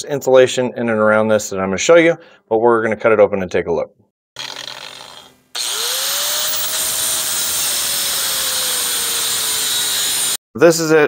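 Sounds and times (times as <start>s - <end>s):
angle grinder cutting metal: 4.4s - 10.4s.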